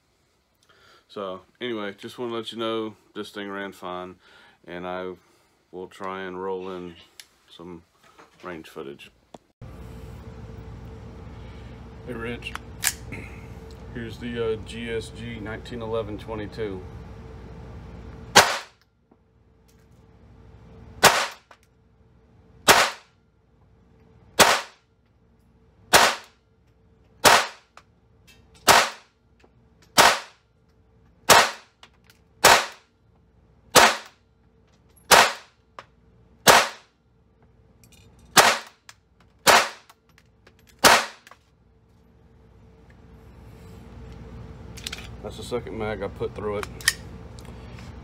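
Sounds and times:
pistol shots: 0:18.4 - 0:18.8, 0:21.0 - 0:21.5, 0:22.7 - 0:23.0, 0:24.4 - 0:24.8, 0:25.9 - 0:26.3, 0:27.2 - 0:27.6, 0:28.6 - 0:29.0, 0:30.0 - 0:30.4, 0:31.3 - 0:31.7, 0:32.4 - 0:32.8, 0:33.8 - 0:34.1, 0:35.1 - 0:35.5, 0:36.5 - 0:36.8, 0:38.4 - 0:38.8, 0:39.4 - 0:39.9, 0:40.8 - 0:41.3.

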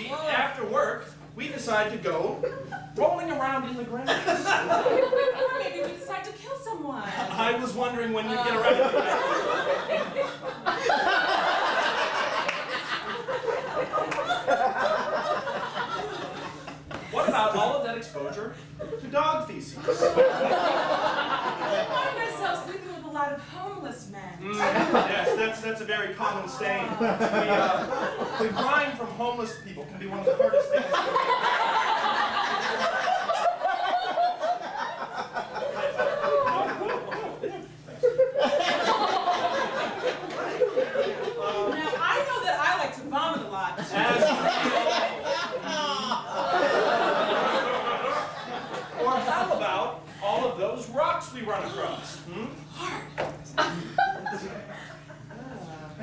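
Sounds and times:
audience laughing: 0:04.1 - 0:06.0, 0:08.4 - 0:17.6, 0:19.8 - 0:22.7, 0:24.6 - 0:25.6, 0:26.6 - 0:29.1, 0:30.1 - 0:42.6, 0:43.3 - 0:50.1, 0:53.5 - 0:56.0.

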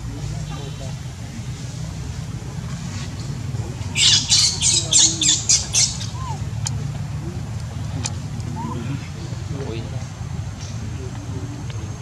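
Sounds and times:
low background hum: 0:00.0 - 0:12.0
harsh squawking animal calls: 0:04.0 - 0:06.6.

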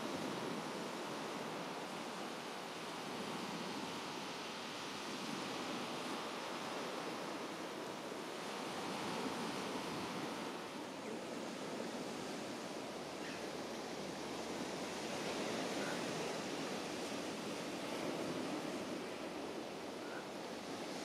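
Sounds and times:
sea waves washing on shore: 0:00.0 - 0:21.0.

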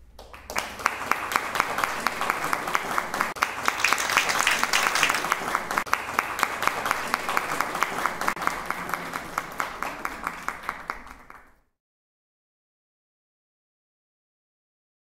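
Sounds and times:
audience applauding: 0:00.1 - 0:11.7.

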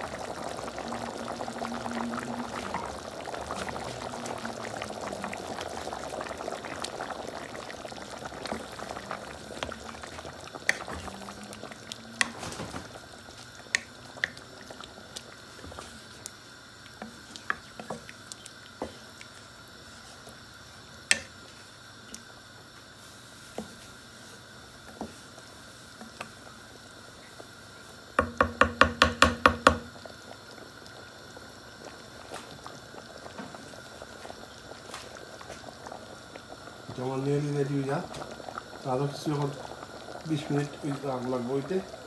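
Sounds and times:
curry bubbling in a metal pan: 0:00.0 - 0:20.4, 0:28.2 - 0:42.0
wooden spatula clicking on pan: 0:21.1 - 0:21.3, 0:28.2 - 0:29.9.

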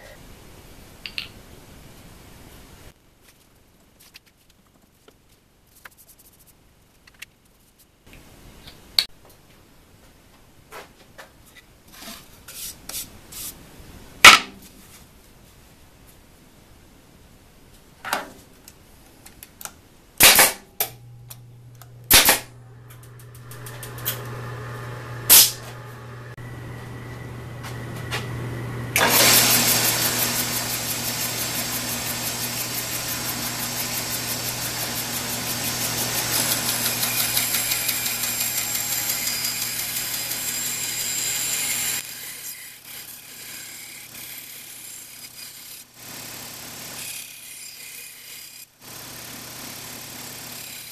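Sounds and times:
bandsaw motor humming: 0:20.8 - 0:44.6
bandsaw blade cutting plywood: 0:22.1 - 0:22.5, 0:25.3 - 0:25.7, 0:29.0 - 0:48.7.

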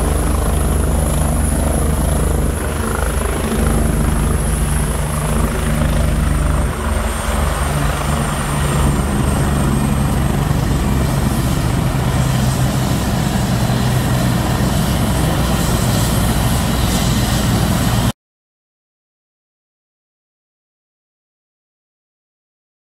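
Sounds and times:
helicopter turbine and rotor drone: 0:00.0 - 0:18.1.

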